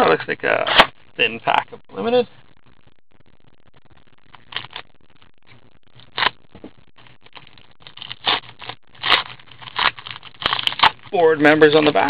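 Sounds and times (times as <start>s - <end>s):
plastic wrapper crinkling: 4.2s - 4.9s, 5.9s - 12.0s.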